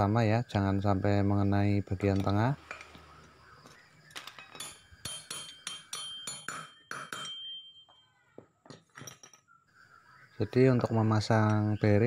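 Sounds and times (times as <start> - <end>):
light metal clinks: 4.2 - 9.6
hammer tapping metal with ringing: 4.3 - 9.4.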